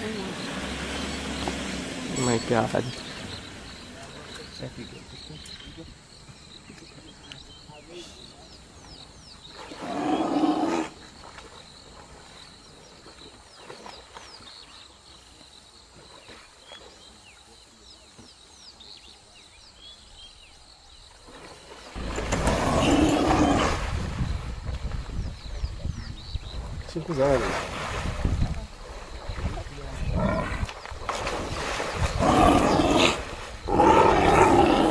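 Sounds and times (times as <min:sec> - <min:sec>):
lions growling: 0:22.0 - 0:24.0, 0:30.0 - 0:30.7, 0:32.0 - 0:34.9
low rumble: 0:22.0 - 0:25.5.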